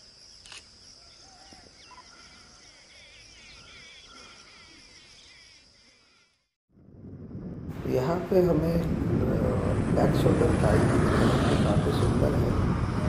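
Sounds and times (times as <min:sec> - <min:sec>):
small birds chirping: 0:00.2 - 0:06.5.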